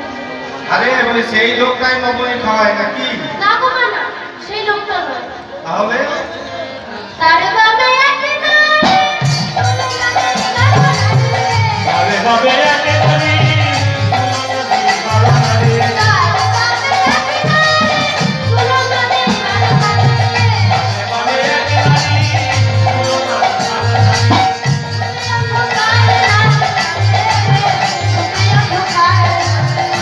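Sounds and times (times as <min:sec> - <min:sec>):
harmonium: 0:00.0 - 0:30.0
drums beating: 0:08.7 - 0:30.0.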